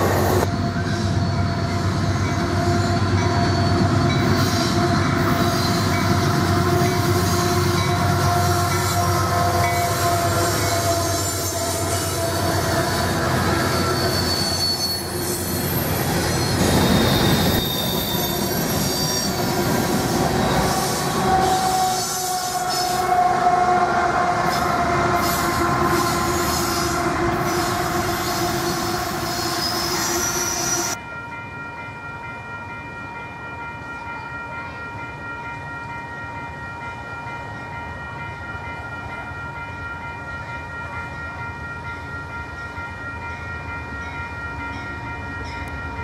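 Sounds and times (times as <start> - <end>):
freight train rolling past: 0.0 - 46.0
wheel squeal: 10.7 - 19.5.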